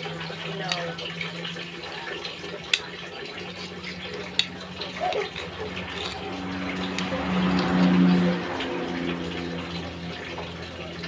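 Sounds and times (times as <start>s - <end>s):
utensil picking at seafood: 2.1s - 8.8s.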